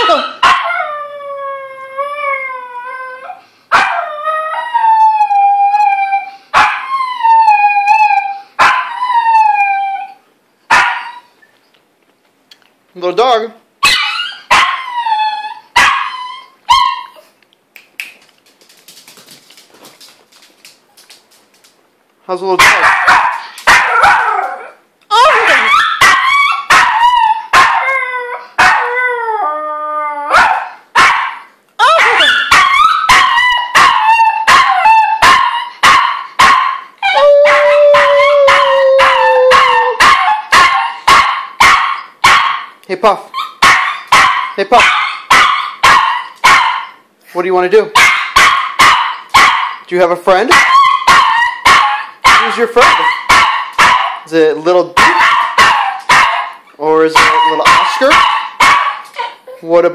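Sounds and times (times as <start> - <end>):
dog yelping cries: 0.0 - 0.9, 6.6 - 11.4, 13.8 - 17.3, 22.6 - 29.4, 30.1 - 47.1, 47.9 - 49.9, 50.5 - 54.3, 55.0 - 59.7
dog howling: 37.0 - 40.9, 57.1 - 59.6.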